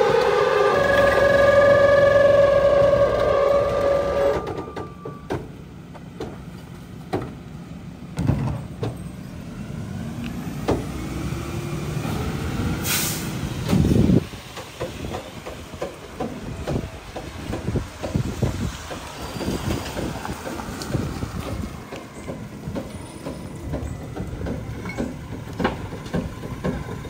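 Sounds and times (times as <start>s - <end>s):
diesel engine revving: 0.0s - 4.6s, 9.1s - 14.3s
air brake release hiss: 12.8s - 14.1s.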